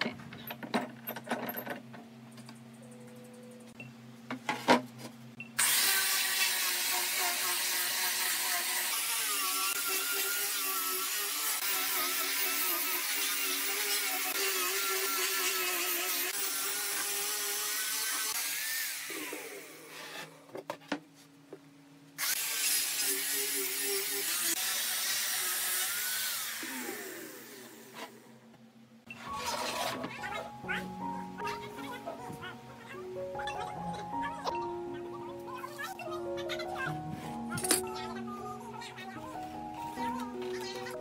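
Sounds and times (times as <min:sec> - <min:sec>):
angle grinder sanding wood: 0:05.6 - 0:20.3, 0:22.2 - 0:28.2.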